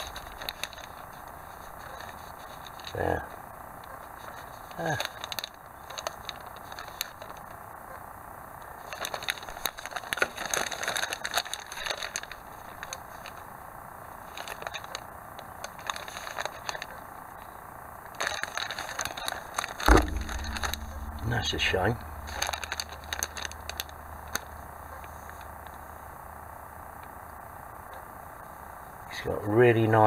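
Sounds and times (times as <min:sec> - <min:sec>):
plastic bag crinkling: 0:18.2 - 0:25.8.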